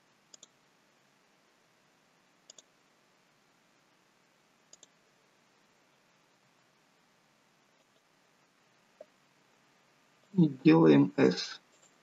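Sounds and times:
faint steady hiss: 0:00.0 - 0:12.0
computer mouse clicking: 0:00.3 - 0:00.6, 0:02.4 - 0:02.7, 0:04.7 - 0:05.0, 0:11.7 - 0:12.0.

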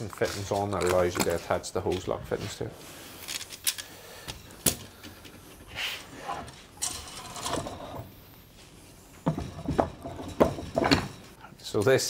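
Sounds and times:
copper pipe scraping and rubbing: 0:05.4 - 0:11.5.

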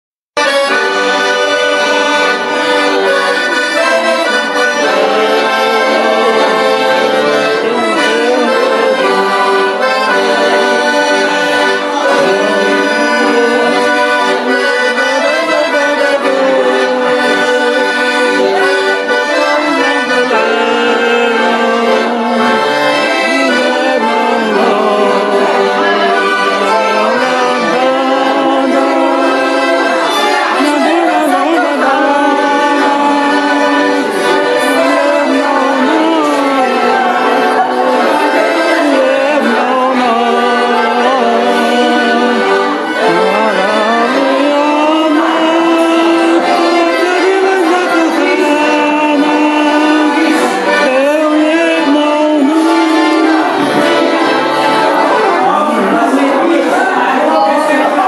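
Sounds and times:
accordion playing a dance tune: 0:00.4 - 0:58.0.

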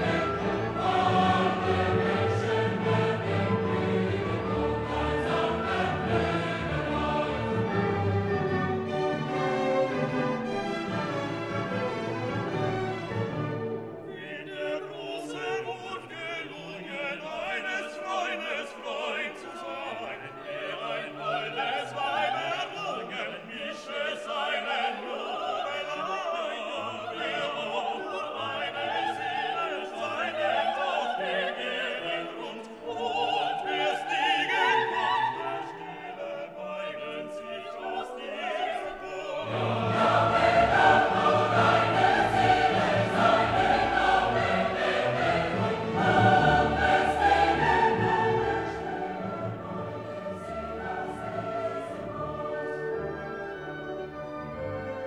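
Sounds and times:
orchestra playing: 0:00.0 - 0:16.4, 0:38.2 - 0:55.0
operatic singing: 0:00.0 - 0:54.4
choir singing: 0:00.0 - 0:55.0.

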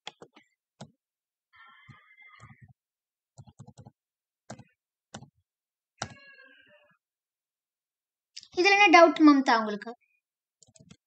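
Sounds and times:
computer mouse clicks: 0:10.6 - 0:11.0.

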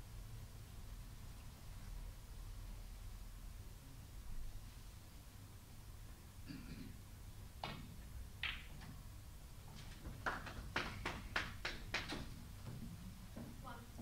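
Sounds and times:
cue striking ball: 0:07.6 - 0:09.0
snooker balls clicking: 0:07.6 - 0:09.0, 0:09.7 - 0:13.6.

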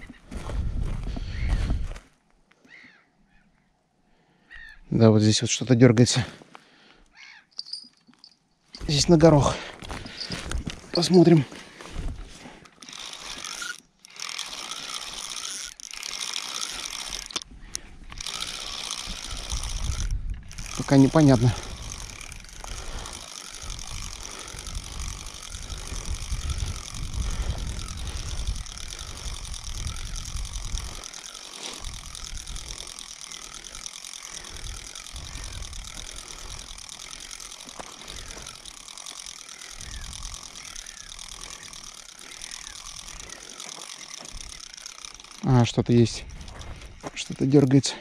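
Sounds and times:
wind rumble on microphone: 0:00.0 - 0:02.0, 0:23.6 - 0:31.0
fishing reel gears whirring: 0:07.2 - 0:48.0.

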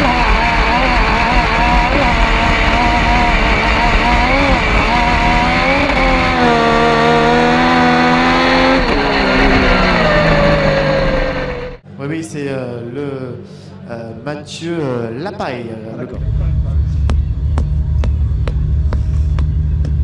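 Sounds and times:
motorcycle engine revving hard: 0:00.0 - 0:11.8.

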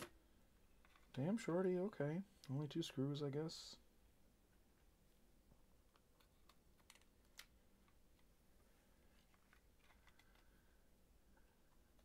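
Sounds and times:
small clicks and taps handling plastic: 0:05.9 - 0:08.3.

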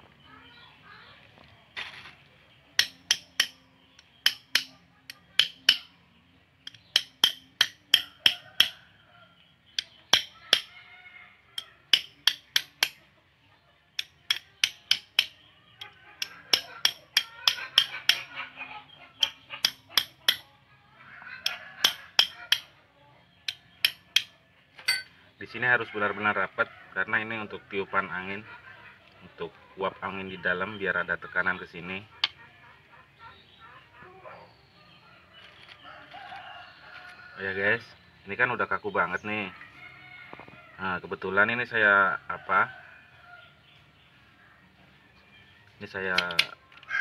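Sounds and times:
metal parts clicking together: 0:06.6 - 0:08.0.

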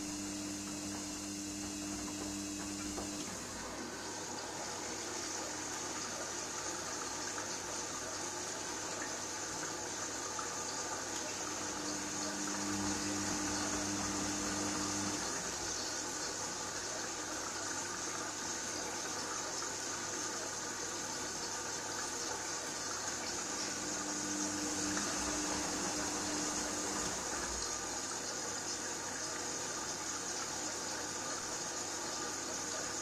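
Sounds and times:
low motor hum: 0:00.0 - 0:03.8, 0:11.4 - 0:15.6, 0:23.4 - 0:27.6
water sloshing in washing machine drum: 0:23.1 - 0:28.1.

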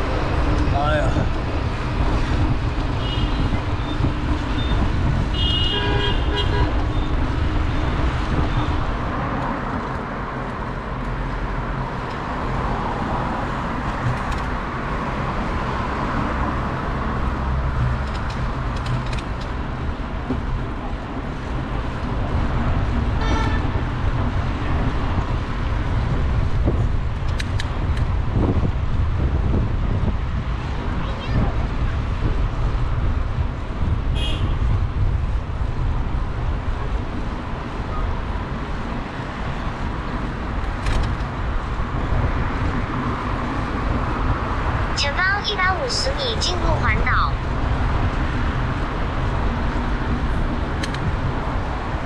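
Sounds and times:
road traffic noise: 0:00.0 - 0:52.0
vehicle horn: 0:03.0 - 0:03.6, 0:04.6 - 0:07.1, 0:23.2 - 0:23.8, 0:34.2 - 0:34.6.

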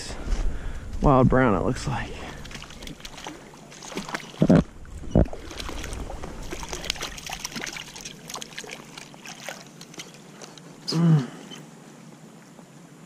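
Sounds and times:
water sloshing and trickling: 0:01.8 - 0:12.7
fish splashing at surface: 0:02.3 - 0:04.6, 0:05.2 - 0:10.6.

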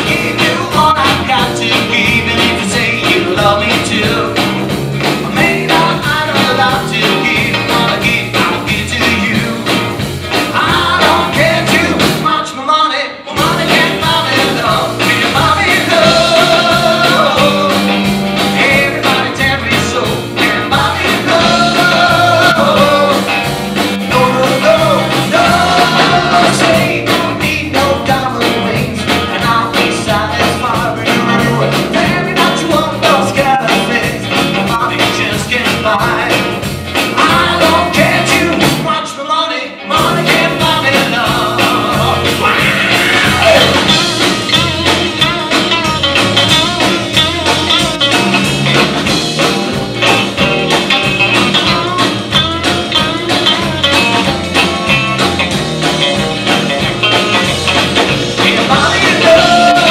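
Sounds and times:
lead vocal singing: 0:00.0 - 0:45.4, 0:58.2 - 0:59.9
bass guitar: 0:00.0 - 0:59.9
drums: 0:00.0 - 0:59.9
electric guitars: 0:00.0 - 0:59.9.

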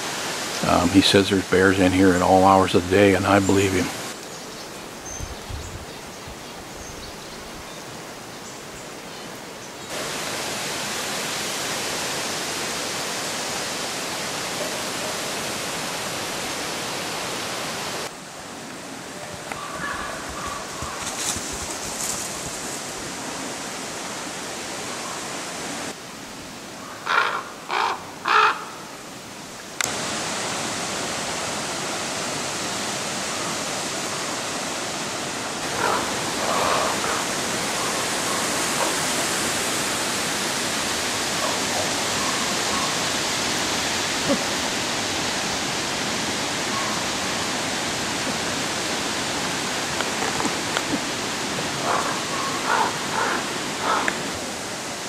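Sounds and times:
steady hiss: 0:00.0 - 0:55.0
faint bird calls: 0:19.1 - 0:21.3, 0:26.8 - 0:28.9, 0:35.7 - 0:39.2, 0:41.4 - 0:43.1, 0:46.6 - 0:47.2, 0:51.7 - 0:54.3
crow calling harshly: 0:19.6 - 0:21.0, 0:26.9 - 0:28.8, 0:35.6 - 0:39.1, 0:51.8 - 0:54.2.

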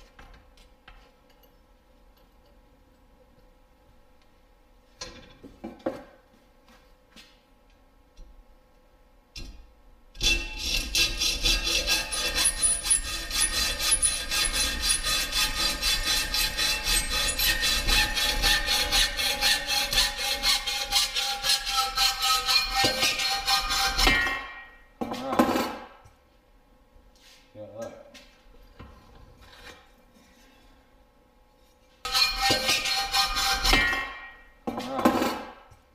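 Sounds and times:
hacksaw cutting metal: 0:10.2 - 0:24.8, 0:32.0 - 0:35.6.

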